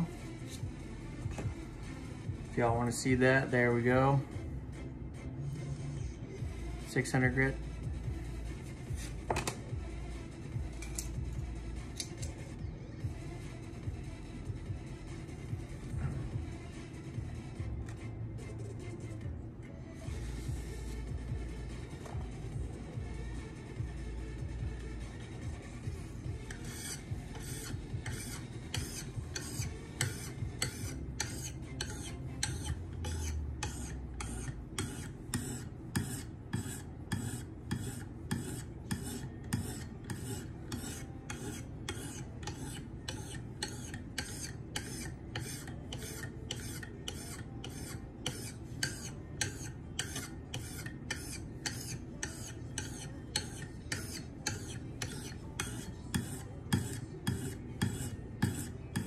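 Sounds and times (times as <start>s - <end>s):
sharpening stone scraping knife edge: 26.5s - 59.0s.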